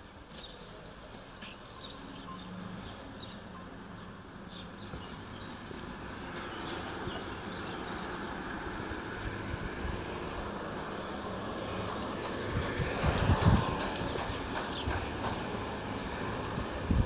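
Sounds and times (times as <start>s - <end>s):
steady rushing noise: 8.0s - 17.0s.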